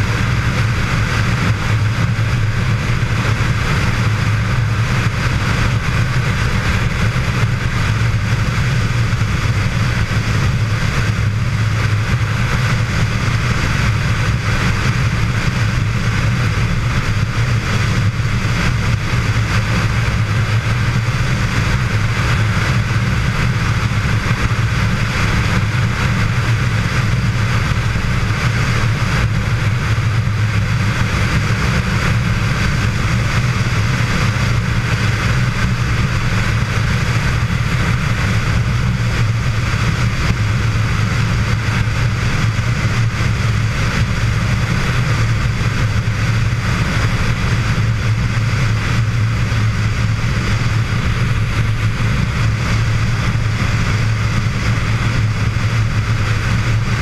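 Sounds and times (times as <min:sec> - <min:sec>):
motorcycle engine drone: 0:00.0 - 0:57.0
wind and road noise: 0:00.0 - 0:57.0.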